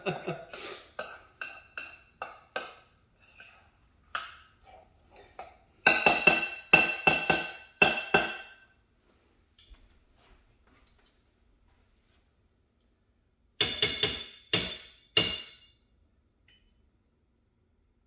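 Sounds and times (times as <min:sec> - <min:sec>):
spoon clinking in ceramic bowl: 0:01.0 - 0:03.6, 0:05.8 - 0:08.6.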